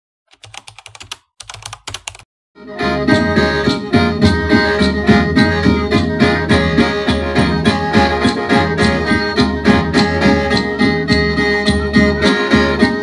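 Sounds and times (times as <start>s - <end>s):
percussion beat: 2.8s - 13.0s.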